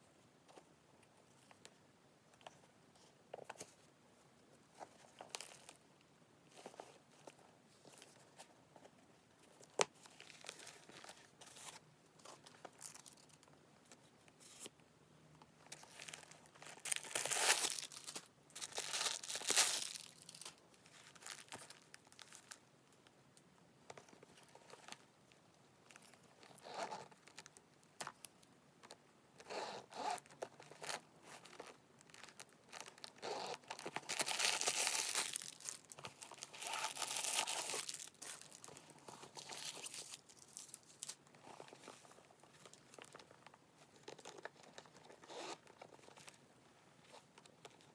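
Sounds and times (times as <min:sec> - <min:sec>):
paper crinkling and rustling: 0:09.6 - 0:13.4, 0:15.7 - 0:22.6, 0:30.1 - 0:46.4.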